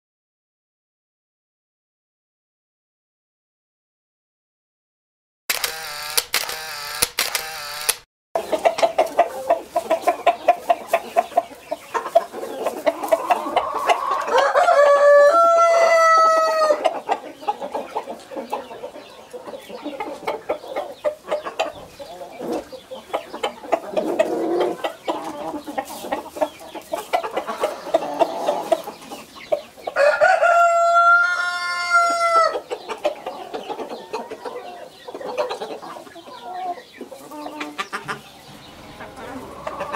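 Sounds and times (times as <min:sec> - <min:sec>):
chickens clucking: 0:06.6 - 0:39.9
rooster crowing: 0:14.0 - 0:16.8, 0:30.0 - 0:32.5.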